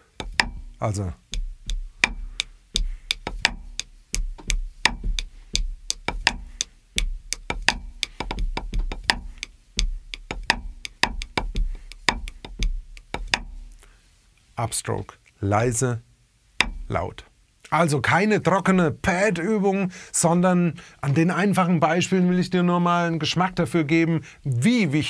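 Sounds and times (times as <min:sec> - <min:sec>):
kick drum thumps: 0:00.0 - 0:13.8, 0:16.6 - 0:17.0
fast stick strokes: 0:00.0 - 0:13.9, 0:16.6 - 0:17.1.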